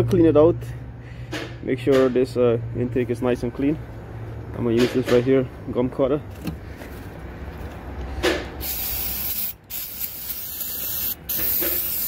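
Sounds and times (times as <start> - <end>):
aerosol can spraying: 8.6 - 12.0.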